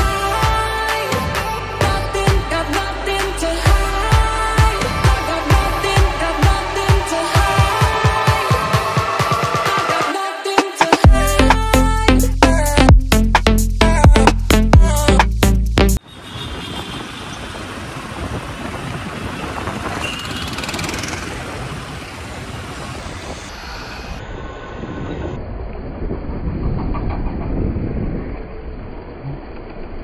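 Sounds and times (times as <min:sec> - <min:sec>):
motorcycle road noise: 0:16.0 - 0:30.0
wind rush: 0:16.1 - 0:30.0.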